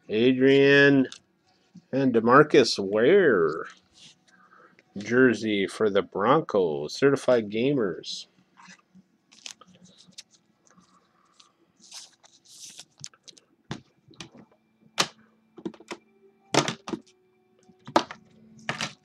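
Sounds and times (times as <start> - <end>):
card packaging rustling: 8.6 - 13.4.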